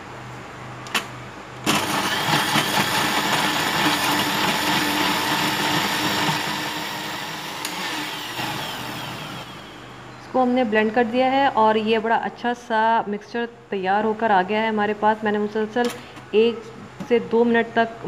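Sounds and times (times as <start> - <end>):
blender motor running: 1.6 - 9.9
blender switch click: 7.6 - 7.9.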